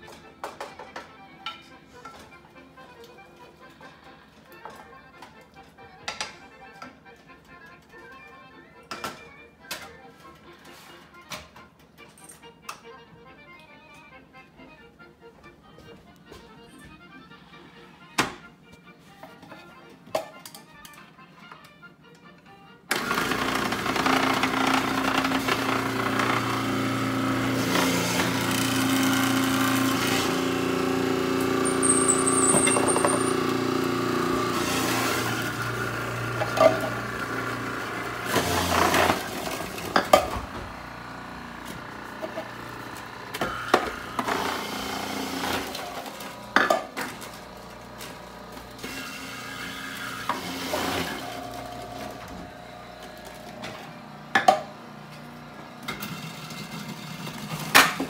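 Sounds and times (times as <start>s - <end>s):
food processor motor running: 22.9s - 58.0s.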